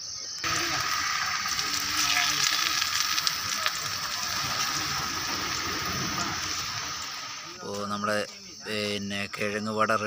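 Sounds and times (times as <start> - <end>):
dough balls deep-frying in oil: 0.4 - 7.8.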